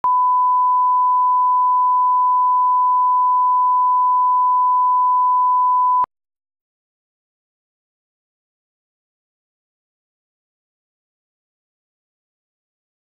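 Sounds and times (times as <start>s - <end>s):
steady test tone beep: 0.0s - 6.1s.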